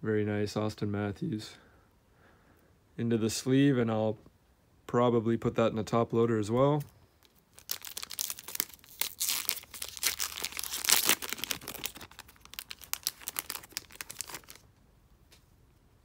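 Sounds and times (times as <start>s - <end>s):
wrapper tearing and crinkling: 7.2s - 14.6s.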